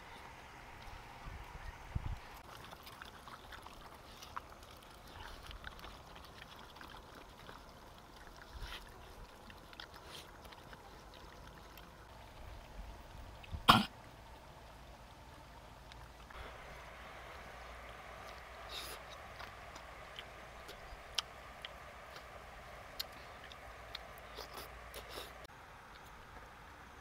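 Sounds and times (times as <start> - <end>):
dogs chewing and lapping: 2.4 - 13.6, 15.8 - 25.5.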